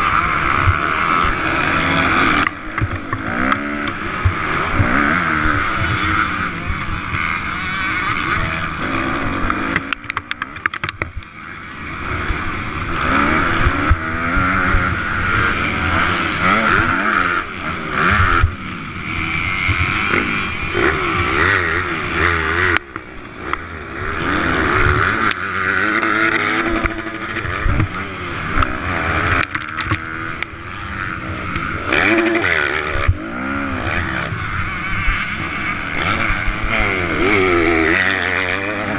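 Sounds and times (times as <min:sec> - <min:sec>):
motocross bike engine revving: 0:00.0 - 0:38.9.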